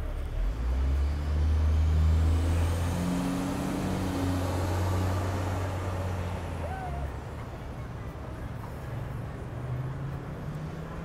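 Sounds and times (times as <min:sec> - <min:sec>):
vehicle engine accelerating past: 0:00.4 - 0:06.6.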